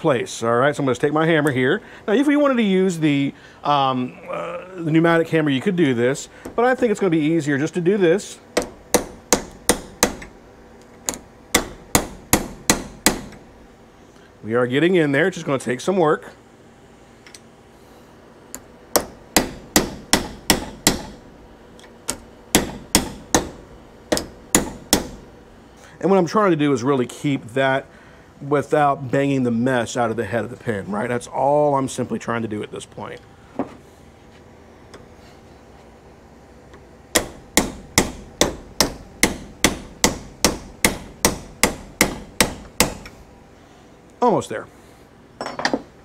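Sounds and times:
hammer striking metal: 8.6 - 10.3, 11.5 - 13.4, 18.9 - 21.2, 22.1 - 25.2, 37.1 - 43.1.

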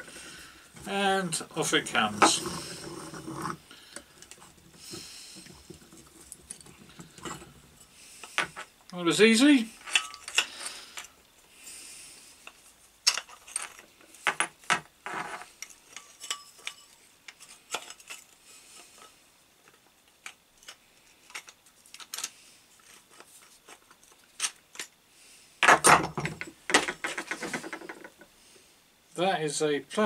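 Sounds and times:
metal parts clinking: 9.8 - 11.1, 13.0 - 14.5, 15.2 - 18.3.

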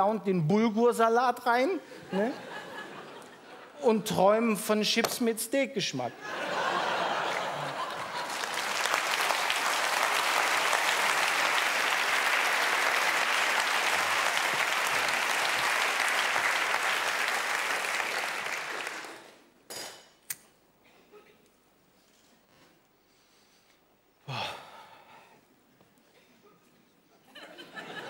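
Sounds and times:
studio audience applauding: 6.8 - 19.4.

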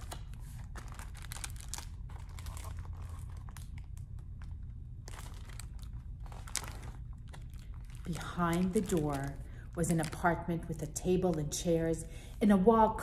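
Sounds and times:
paper rustling and crinkling: 0.0 - 10.3.

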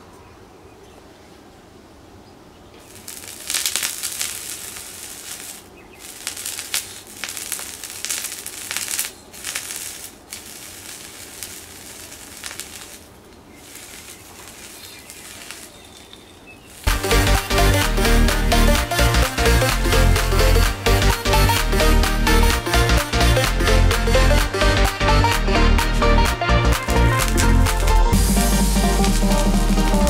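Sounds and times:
aluminium foil crinkling: 2.8 - 16.9.

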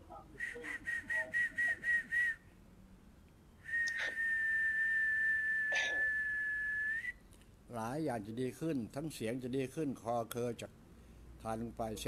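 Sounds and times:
high whistled tone: 0.4 - 2.4, 3.6 - 7.2.

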